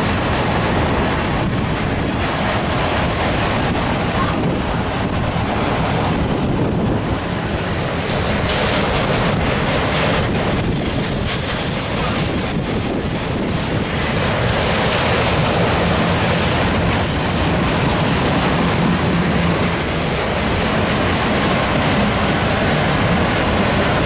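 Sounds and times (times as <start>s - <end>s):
train wheels on rails: 0.0s - 24.0s.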